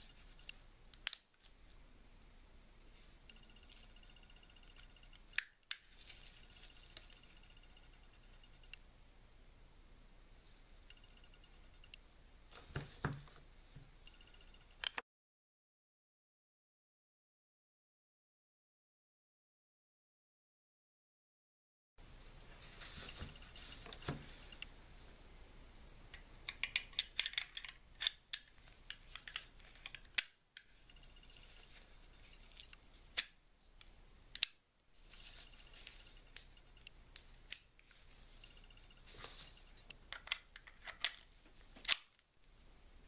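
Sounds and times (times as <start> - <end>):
pistol parts clicking: 0.9 - 1.5, 26.4 - 31.4, 32.5 - 33.4, 34.3 - 34.6, 39.9 - 42.3.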